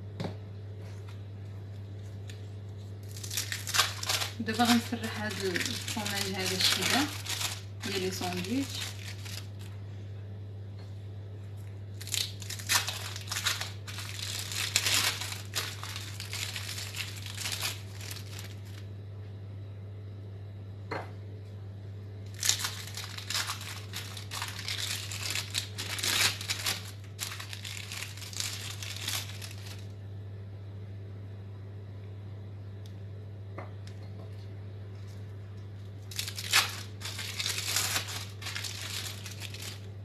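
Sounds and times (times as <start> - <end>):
steady low hum: 0.0 - 40.0
plastic film crinkling and tearing: 2.1 - 9.8, 12.0 - 18.8, 22.3 - 29.9, 36.0 - 39.9.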